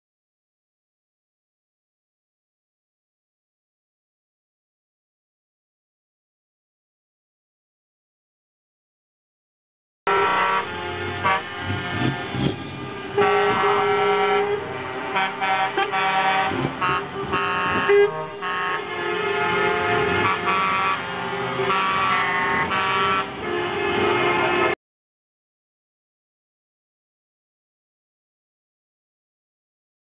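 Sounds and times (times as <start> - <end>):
truck air horns blowing: 10.1 - 24.8
truck engines running: 10.1 - 24.8.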